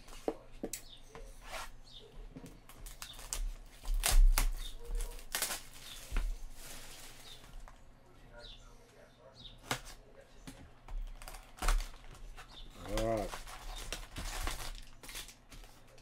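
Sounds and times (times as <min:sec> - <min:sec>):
cardboard rustling: 0:02.6 - 0:07.8, 0:09.6 - 0:16.0.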